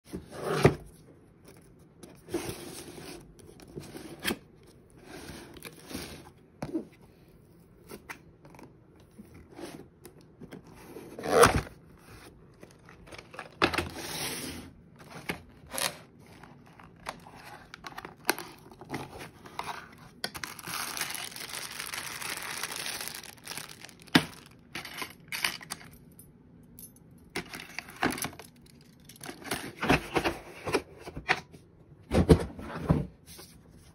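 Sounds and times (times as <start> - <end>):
cardboard packaging rustling: 11.1 - 25.8.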